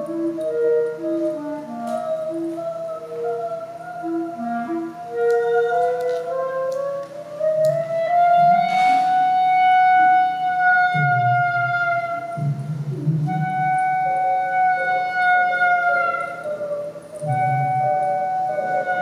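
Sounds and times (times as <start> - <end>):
clarinet holding long notes: 0.0 - 19.0.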